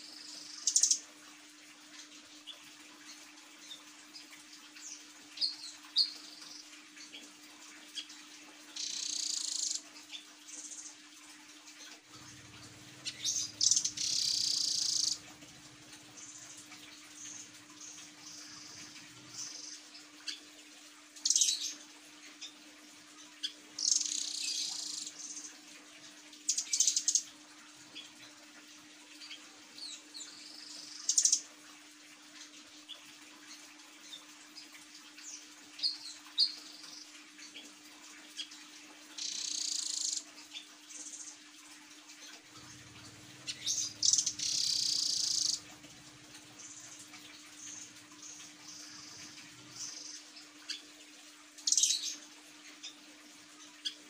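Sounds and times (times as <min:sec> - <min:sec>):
nuthatch trilled calls: 0:13.0 - 0:15.3, 0:43.4 - 0:45.7.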